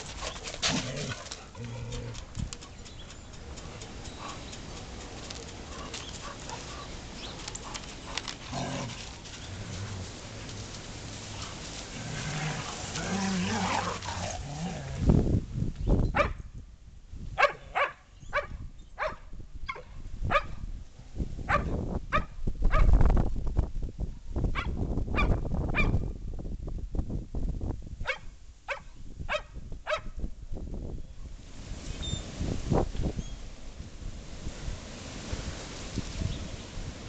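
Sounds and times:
dogs playing rough: 0.0 - 4.5, 5.1 - 15.1.

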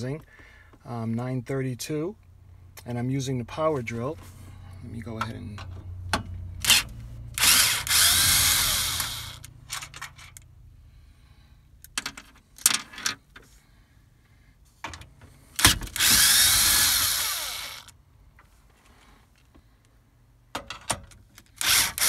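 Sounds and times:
power drill backing out bolts: 7.4 - 9.9, 15.6 - 17.9.

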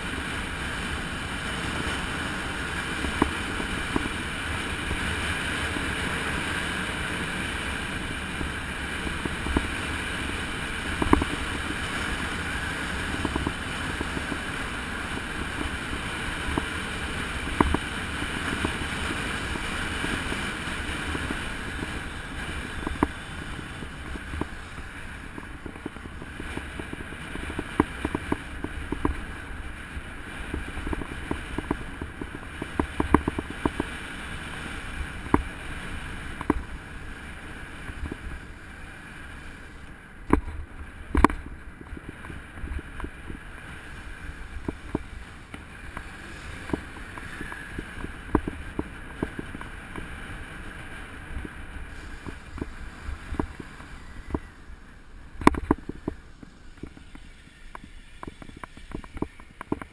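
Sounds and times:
road rumble: 0.0 - 59.9
wind on microphone: 0.0 - 59.9
clicks and knocks from road bumps: 9.0 - 16.8, 17.4 - 18.9, 21.0 - 29.5, 30.4 - 34.0, 36.3 - 36.8, 39.8 - 54.6, 55.4 - 59.9.

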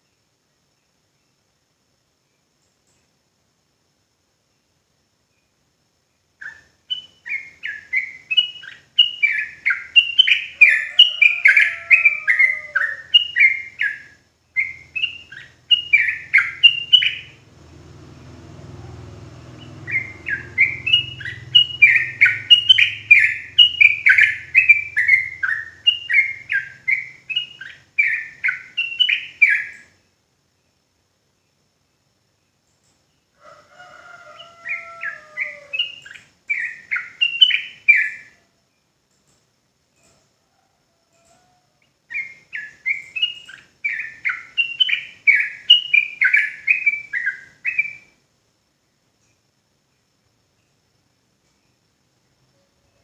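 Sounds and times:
bird singing whistled notes: 6.4 - 30.0, 34.4 - 38.4, 42.1 - 48.2.

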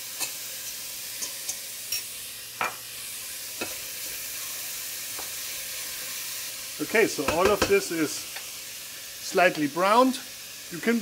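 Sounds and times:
meat sizzling in a pot: 0.0 - 11.0
utensil knocking against pot: 7.2 - 7.7.

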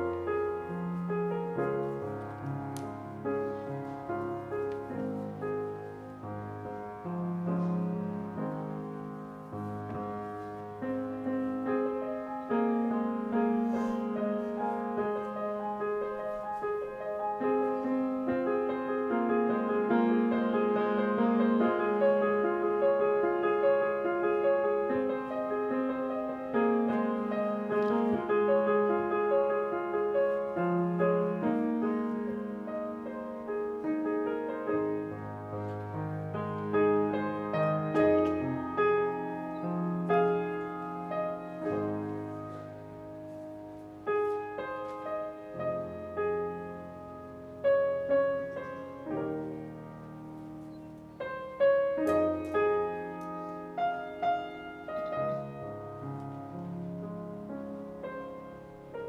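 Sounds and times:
piano playing chords: 0.0 - 59.0.

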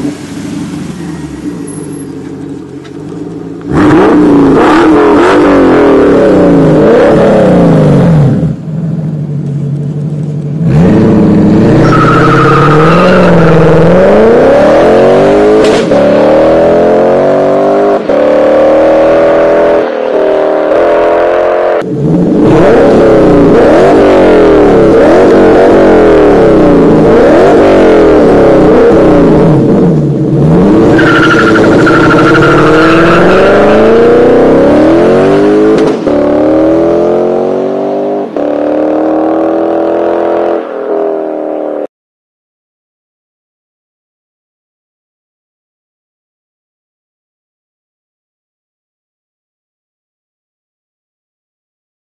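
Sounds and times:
loud car engine revving: 3.6 - 8.6, 10.6 - 41.9.

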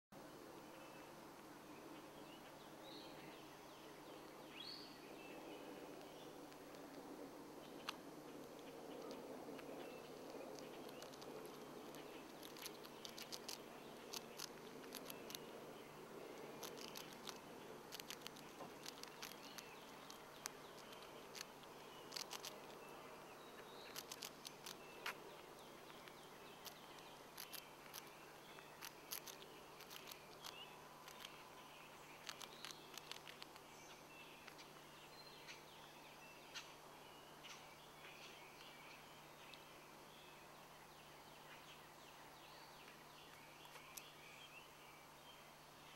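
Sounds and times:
low steady hum: 0.2 - 45.9
rat crunching food: 5.9 - 33.8
faint high chirping: 7.6 - 45.9.

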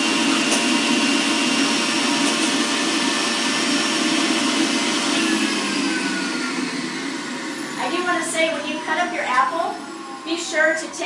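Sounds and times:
juicer motor whirring: 0.0 - 11.0.

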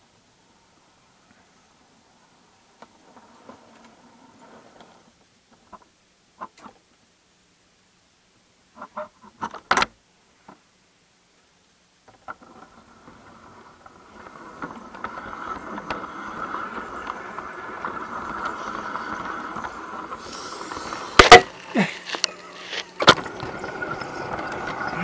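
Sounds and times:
model train motor hum and rumble: 12.1 - 25.0.

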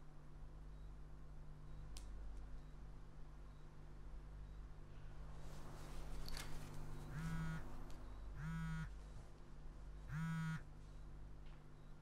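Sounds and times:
click: 1.9 - 2.5
faint rustle: 5.3 - 8.0
mobile phone vibrating: 7.0 - 7.8, 8.4 - 9.0, 10.1 - 10.7.

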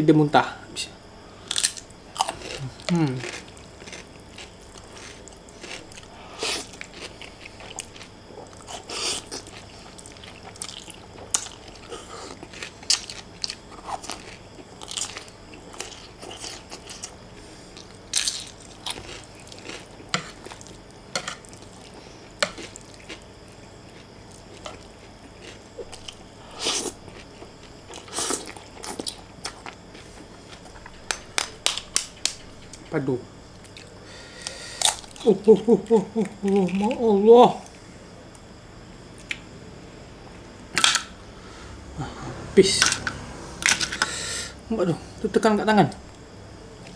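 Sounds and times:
crunchy cucumber bites: 1.4 - 17.2
person chewing noodles: 1.4 - 31.1, 33.6 - 37.0.

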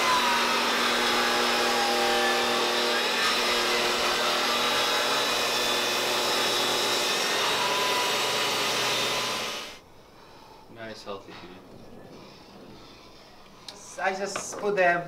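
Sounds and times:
table saw cutting wood: 0.0 - 9.8.

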